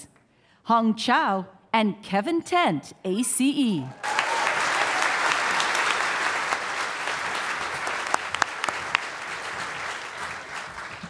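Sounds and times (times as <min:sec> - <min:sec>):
audience applauding: 0:04.0 - 0:11.0
single claps: 0:04.1 - 0:11.0.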